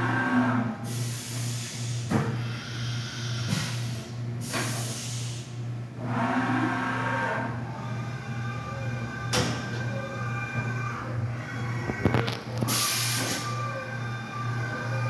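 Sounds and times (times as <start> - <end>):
cnc machine humming and whirring: 0.0 - 4.4, 5.1 - 15.0
machine whine: 5.9 - 15.0.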